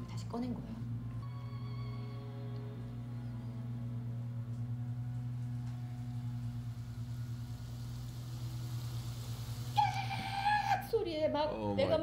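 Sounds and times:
low steady drone: 0:00.0 - 0:12.0
high hiss: 0:06.1 - 0:11.0.

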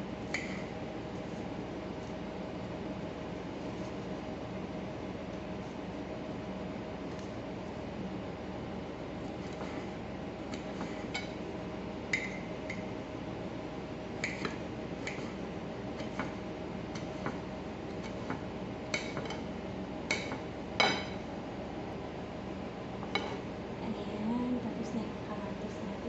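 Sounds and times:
steady low hum: 0:00.0 - 0:26.0
knife clicking on a plate: 0:14.2 - 0:15.4.

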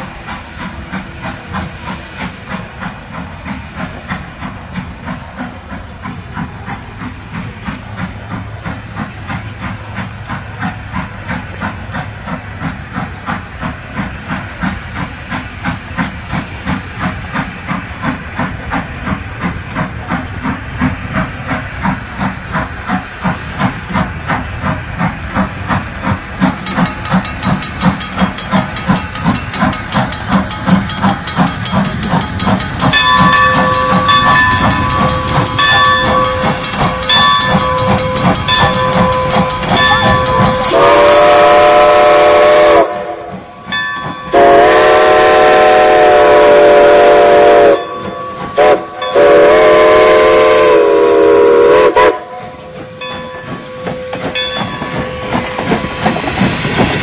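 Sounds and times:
steam locomotive exhaust beating: 0:00.0 - 0:57.0
bell ringing: 0:31.9 - 0:40.7, 0:53.0 - 0:55.5
steam whistle blast: 0:33.0 - 0:53.0.

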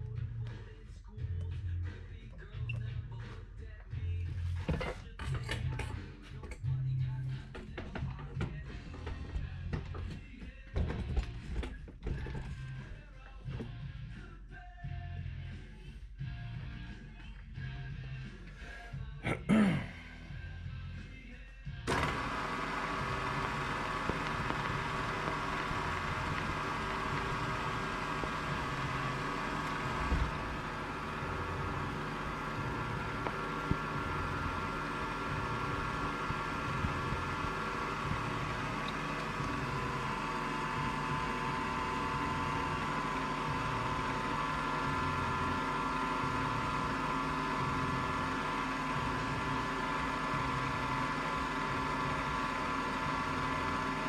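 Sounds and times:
milling machine motor whine: 0:21.9 - 0:54.0.

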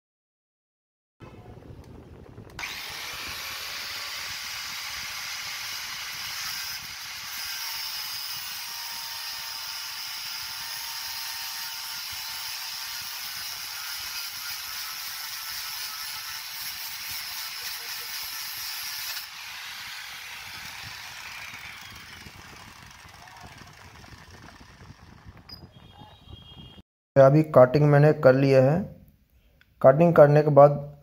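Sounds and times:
angle grinder grinding steel: 0:02.6 - 0:24.4.

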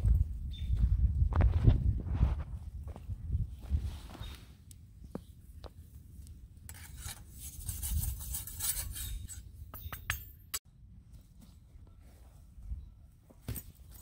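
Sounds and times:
rasping scrapes on rough stone: 0:06.7 - 0:09.4.

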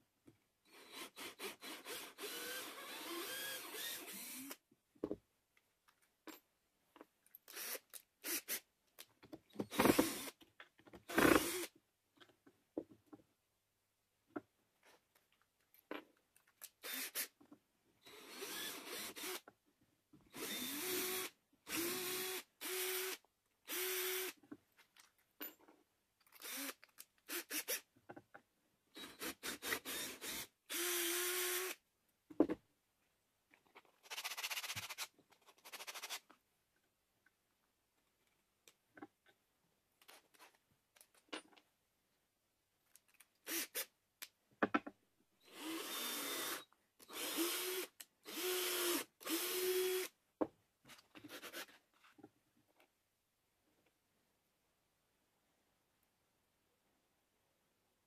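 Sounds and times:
cordless drill boring into wood: 0:00.7 - 0:04.6, 0:07.5 - 0:08.6, 0:09.7 - 0:10.4, 0:11.1 - 0:11.7, 0:16.8 - 0:17.3, 0:18.0 - 0:19.4, 0:20.3 - 0:24.4, 0:26.4 - 0:27.9, 0:29.0 - 0:31.8, 0:43.4 - 0:43.9, 0:45.4 - 0:50.1.

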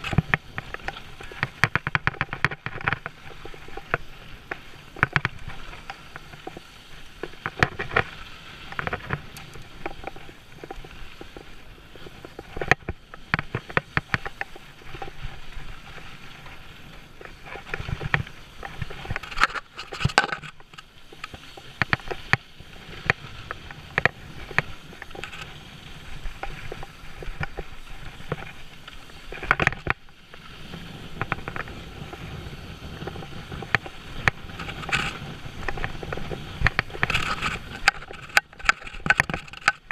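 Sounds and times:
bike clacking over bumps: 0:00.0 - 0:16.5
wind noise: 0:00.0 - 0:39.9.

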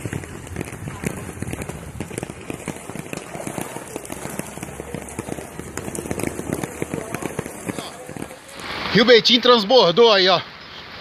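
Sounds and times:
rain drops hitting umbrella: 0:00.0 - 0:09.4
downpour hiss: 0:08.4 - 0:11.0.

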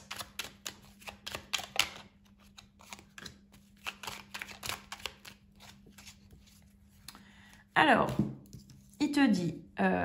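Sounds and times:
cards being shuffled: 0:00.0 - 0:07.1.

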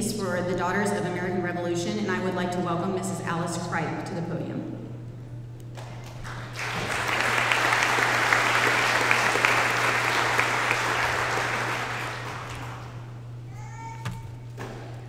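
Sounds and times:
audience applauding: 0:05.8 - 0:13.2.

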